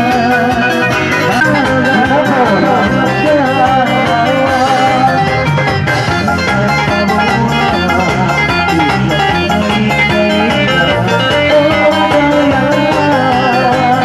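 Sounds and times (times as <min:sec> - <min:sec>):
band playing dance music: 0:00.0 - 0:14.0
plucked guitar: 0:00.0 - 0:14.0.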